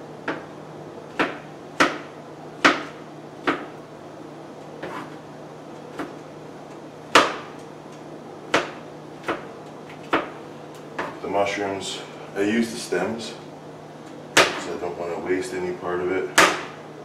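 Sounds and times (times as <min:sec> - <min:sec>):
knife chopping on cutting board: 0:01.1 - 0:03.8, 0:04.8 - 0:05.2, 0:07.1 - 0:07.6, 0:08.5 - 0:10.4, 0:14.4 - 0:14.6, 0:16.4 - 0:16.8.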